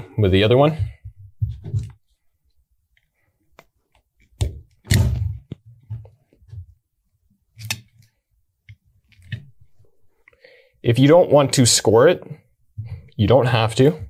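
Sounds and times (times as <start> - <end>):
knife scoring plastic cable jacket: 7.6 - 8.1.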